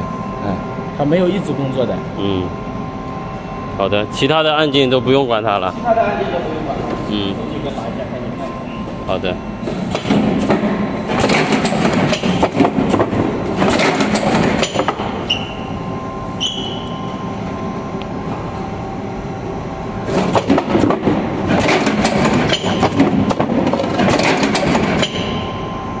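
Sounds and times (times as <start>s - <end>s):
riveting machine clattering: 9.9s - 15.1s, 20.1s - 25.5s.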